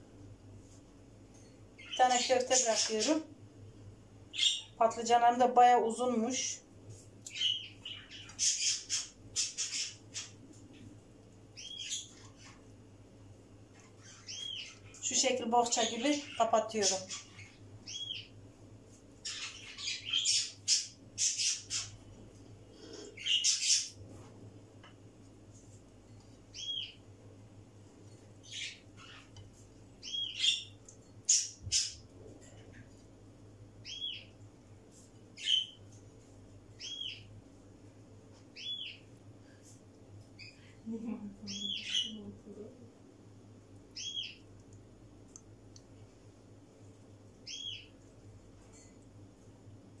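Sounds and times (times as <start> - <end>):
small bird chirping: 1.4 - 3.2, 4.3 - 4.8, 7.2 - 10.8, 11.5 - 12.6, 13.7 - 18.4, 19.2 - 22.0, 22.8 - 24.0, 26.5 - 27.1, 28.4 - 29.4, 30.0 - 32.8, 33.8 - 34.4, 35.4 - 36.0, 36.8 - 37.3, 38.5 - 39.1, 40.3 - 40.8, 41.4 - 42.3, 43.9 - 44.8, 47.4 - 49.0.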